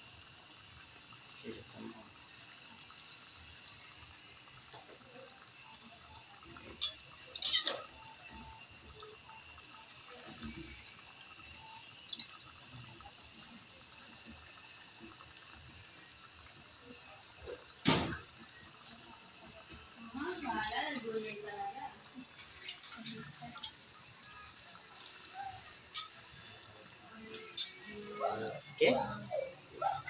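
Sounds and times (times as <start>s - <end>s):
coconut milk simmering: 0.0s - 30.0s
metal ladle clinking on pan: 6.7s - 8.0s, 27.3s - 27.9s.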